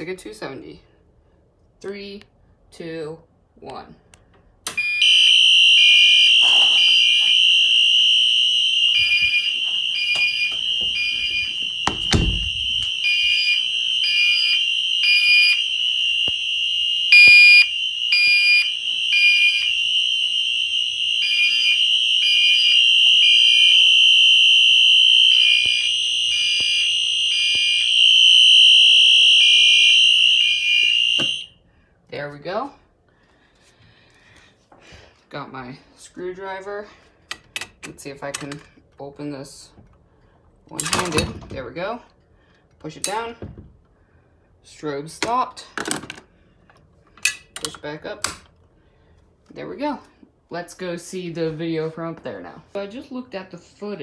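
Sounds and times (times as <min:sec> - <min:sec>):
fire alarm horns: 0:04.8 - 0:31.6
low thump: 0:11.9 - 0:12.8.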